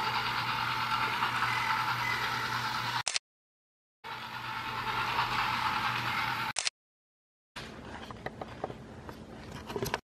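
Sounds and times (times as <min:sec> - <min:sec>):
toy train motor whirring: 0:00.0 - 0:03.2, 0:04.1 - 0:06.7.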